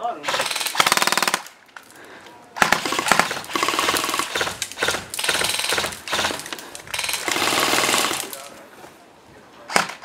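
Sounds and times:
airsoft rifles firing bursts: 0.2 - 1.5, 2.6 - 8.5.

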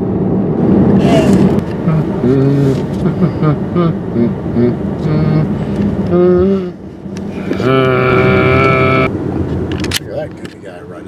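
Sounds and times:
road noise inside moving car: 0.0 - 11.0
person making wordless vocal sounds: 1.0 - 6.8, 7.4 - 9.1.

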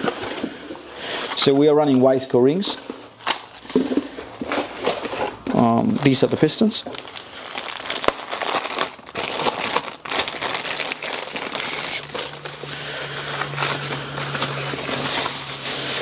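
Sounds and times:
plastic and paper crinkling: 0.0 - 16.0.

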